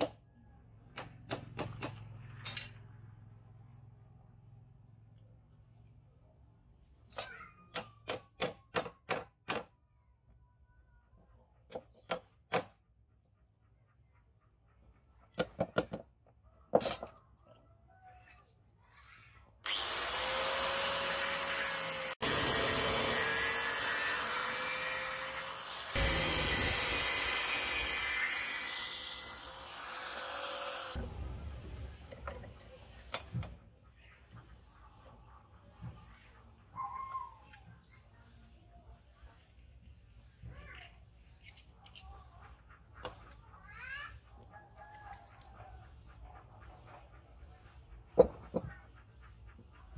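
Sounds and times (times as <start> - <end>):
angle grinder sanding wood: 19.7 - 31.0.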